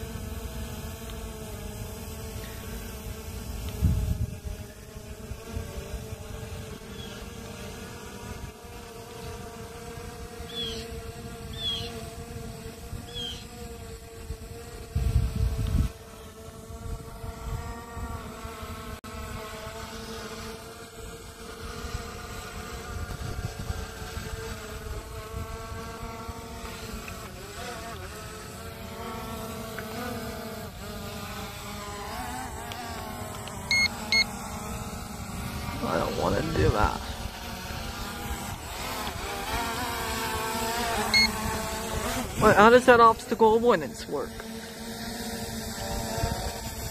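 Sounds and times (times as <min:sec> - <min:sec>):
drone buzzing whine: 0:00.0 - 0:46.9
wind rumble on microphone: 0:03.7 - 0:04.6, 0:14.1 - 0:18.2, 0:22.8 - 0:26.2
drone propellers humming: 0:26.0 - 0:46.9
short high chirps: 0:33.7 - 0:34.2, 0:41.1 - 0:41.3
high electronic beeps: 0:33.7 - 0:34.3, 0:41.1 - 0:41.3.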